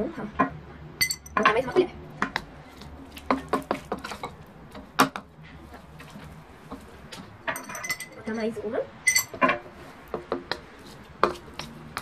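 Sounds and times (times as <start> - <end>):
spoon scraping and clinking glass: 7.5 - 8.5
spoon stirring slime: 10.6 - 12.0.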